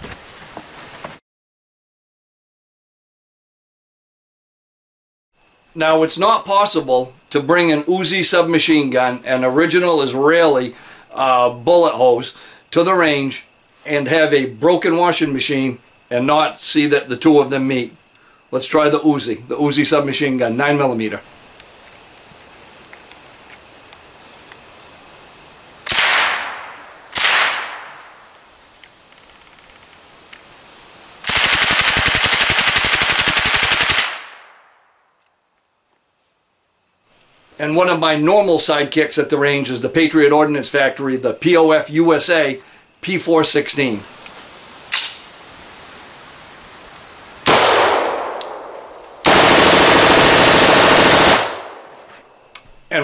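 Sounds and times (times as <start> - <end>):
rifle firing bursts: 25.9 - 28.0, 31.2 - 34.6, 47.5 - 51.9
submachine gun shots: 25.9 - 28.0, 31.2 - 34.7, 47.5 - 51.9.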